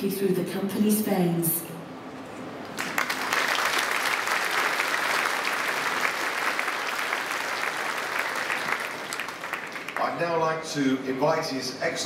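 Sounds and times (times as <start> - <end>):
audience applauding: 2.7 - 10.2.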